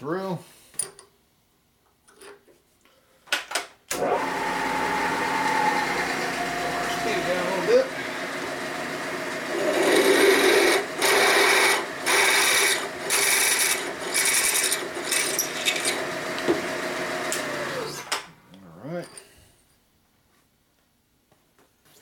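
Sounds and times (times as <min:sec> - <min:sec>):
motor humming: 0:04.0 - 0:18.1
drill cutting metal: 0:04.0 - 0:18.2.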